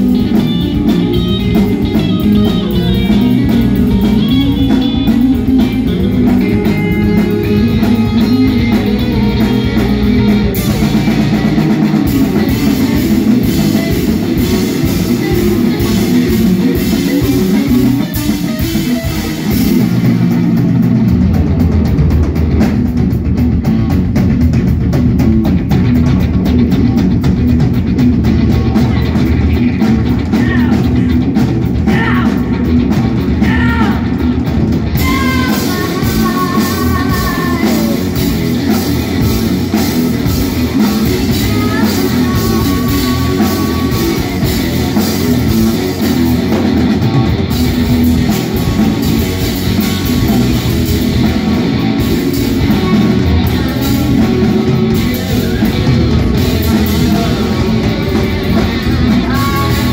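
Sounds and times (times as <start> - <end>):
distorted electric guitars: 0.0 - 59.9
drum kit: 0.0 - 59.9
woman singing: 35.0 - 38.2, 40.9 - 44.6, 52.6 - 59.9.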